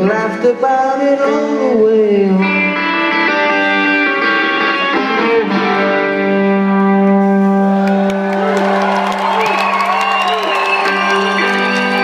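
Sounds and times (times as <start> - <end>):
electric guitar ringing chords: 0.0 - 8.1, 10.9 - 12.0.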